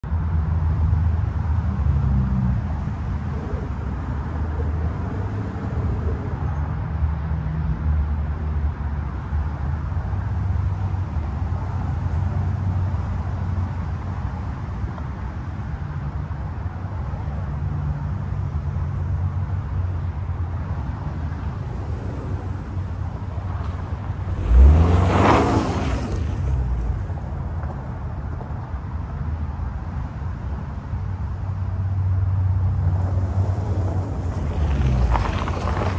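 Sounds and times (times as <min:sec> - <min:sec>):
car engine rumbling: 0:00.8 - 0:28.3, 0:32.6 - 0:35.9
tyre noise: 0:20.8 - 0:27.1, 0:33.6 - 0:35.9
car driving past on gravel: 0:21.3 - 0:27.2, 0:33.4 - 0:35.9.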